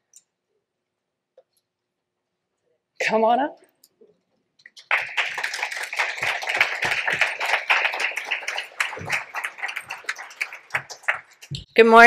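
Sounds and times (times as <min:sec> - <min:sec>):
audience applauding: 0:04.8 - 0:11.6.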